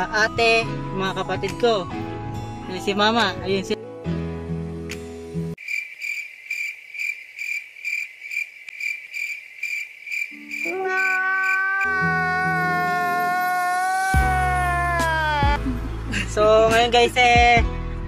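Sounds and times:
cricket chirping: 0:05.6 - 0:12.0
man's high wailing cry: 0:10.6 - 0:15.6.

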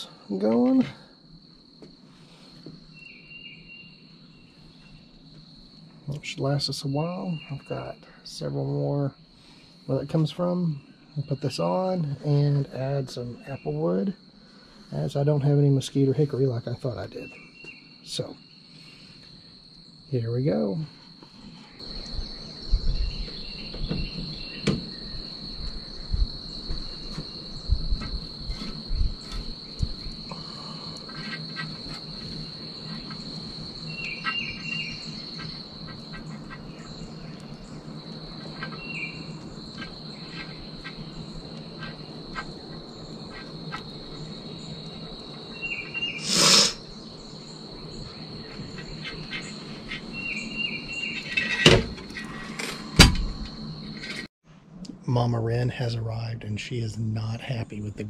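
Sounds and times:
insects droning: 0:00.0 - 0:58.0
clatter of meat on grill grate: 0:51.2 - 0:53.3.

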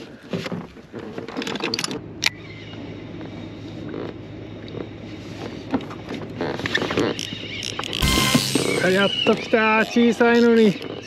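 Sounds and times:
fishing gear clicks and knocks: 0:00.0 - 0:02.4
wind: 0:00.0 - 0:11.0.

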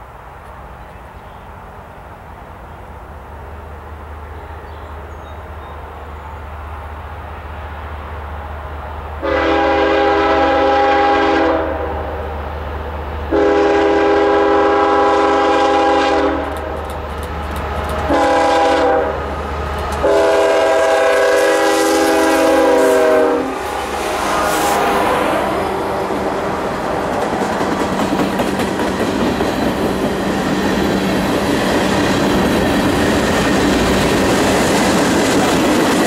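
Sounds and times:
locomotive air horn blasts: 0:09.2 - 0:12.0, 0:13.3 - 0:16.6, 0:18.1 - 0:19.3, 0:20.0 - 0:25.0.

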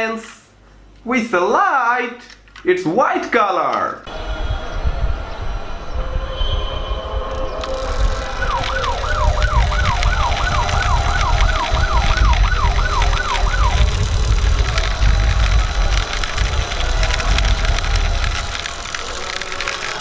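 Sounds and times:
low rumble: 0:04.1 - 0:19.8
toy siren wailing: 0:05.8 - 0:20.0.

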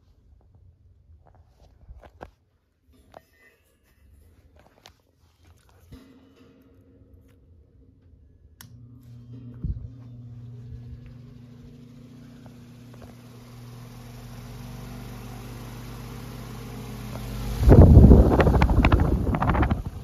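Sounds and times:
electric fan motor hum: 0:08.6 - 0:20.0
wind buffeting microphone: 0:17.6 - 0:20.0.

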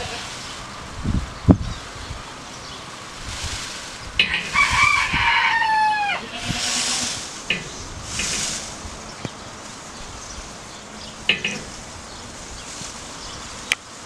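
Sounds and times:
high rustling: 0:02.8 - 0:14.0
fowl crowing: 0:04.2 - 0:08.4.

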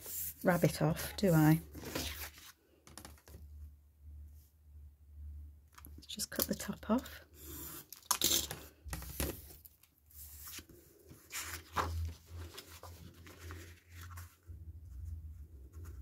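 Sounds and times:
paper rustling: 0:01.7 - 0:03.2, 0:10.2 - 0:14.4.

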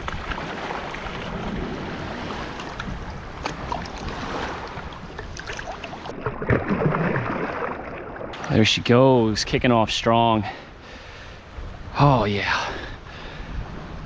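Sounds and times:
wind buffeting microphone: 0:00.0 - 0:06.1, 0:11.2 - 0:14.0
water splash: 0:00.0 - 0:08.5
water sloshing and lapping: 0:00.0 - 0:08.7.

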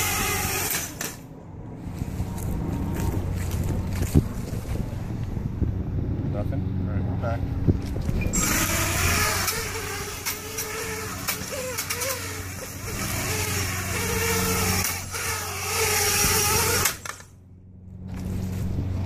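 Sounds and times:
drone motors whirring: 0:00.0 - 0:01.2, 0:07.7 - 0:17.4.

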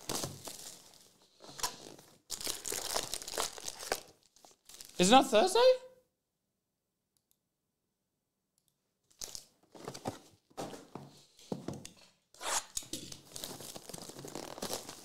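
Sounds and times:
plastic wrapping crackling: 0:00.0 - 0:05.1, 0:09.1 - 0:09.9, 0:13.1 - 0:15.0.

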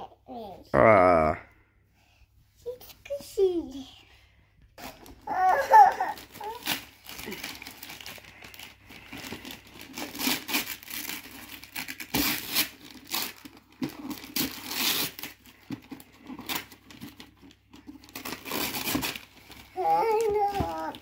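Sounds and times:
wrapping paper tearing and crumpling: 0:04.8 - 0:21.0.

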